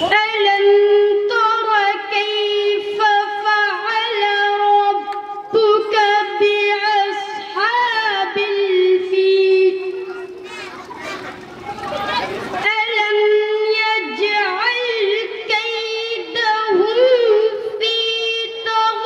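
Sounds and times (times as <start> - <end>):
boy chanting unaccompanied: 0.0 - 10.8, 11.5 - 19.0.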